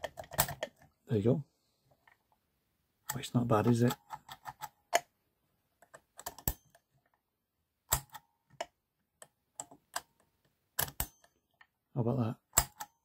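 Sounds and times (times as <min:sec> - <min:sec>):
metallic clicks of key in padlock: 0:12.5 - 0:13.0.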